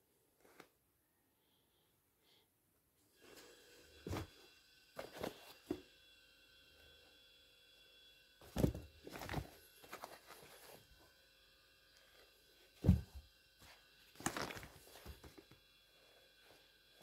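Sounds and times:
shoes thumping on carpet: 8.5s - 9.5s, 12.8s - 13.3s
shoes rustling: 8.5s - 10.8s, 12.8s - 13.2s.

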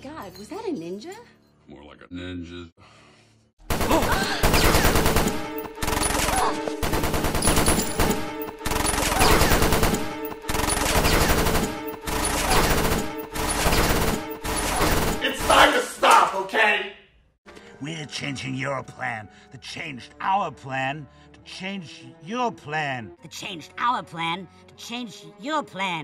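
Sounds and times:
submachine gun fire: 3.7s - 15.7s.

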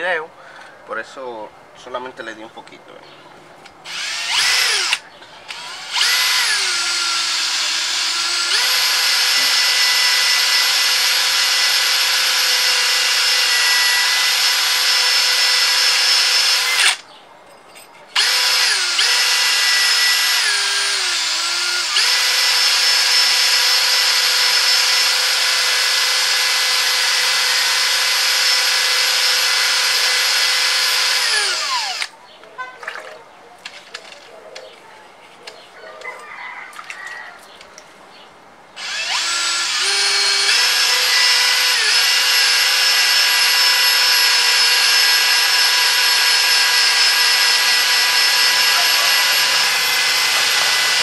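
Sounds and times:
cordless drill motor whining: 3.9s - 17.0s, 18.2s - 32.1s, 38.8s - 51.0s.

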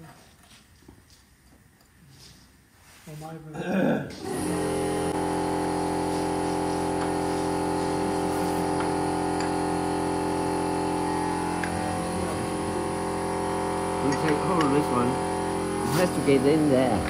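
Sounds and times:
machine humming: 4.1s - 17.0s.

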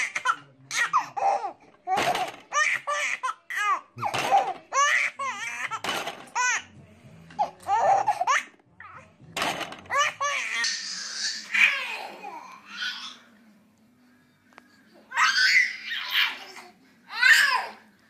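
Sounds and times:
baby laughing: 0.0s - 6.7s, 7.4s - 8.6s, 9.9s - 13.2s.

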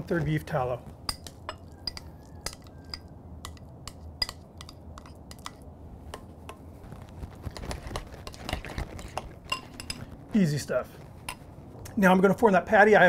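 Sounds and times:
metal spoon clinking against glass bowl: 1.1s - 5.6s, 9.5s - 10.1s.

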